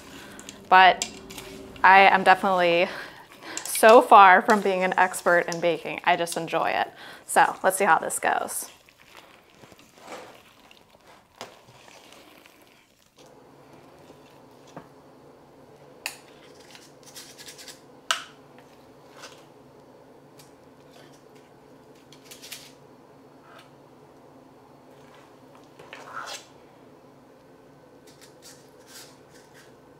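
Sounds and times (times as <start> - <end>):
steady low hum: 0.0 - 9.6, 13.2 - 29.9
spoon scraping batter: 8.6 - 13.3.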